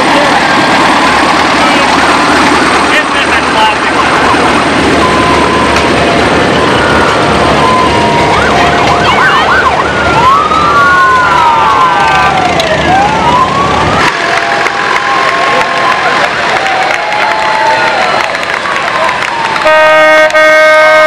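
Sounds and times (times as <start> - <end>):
tractor engines running: 0.0 - 21.0
siren wailing: 4.0 - 16.2.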